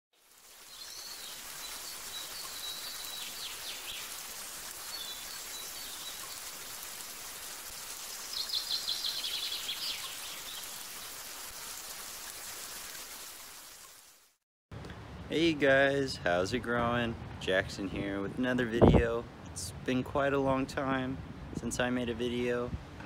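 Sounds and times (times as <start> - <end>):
steady rain hiss: 0.2 - 23.0
birds singing: 0.7 - 4.2, 4.8 - 6.5, 8.2 - 10.9.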